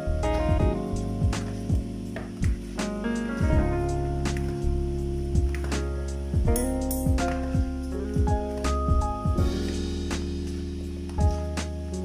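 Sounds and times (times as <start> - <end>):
instrumental music with low beat: 0.0 - 12.0.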